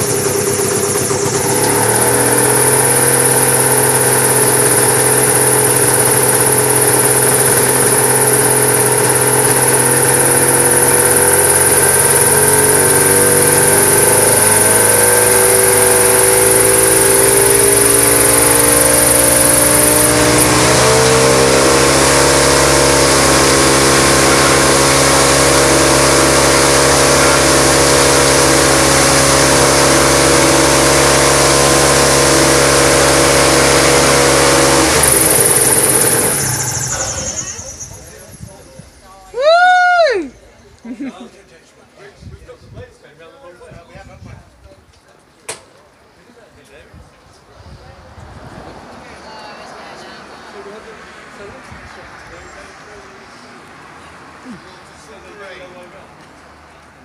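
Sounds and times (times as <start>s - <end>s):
gyrocopter engine running: 0.0s - 40.3s.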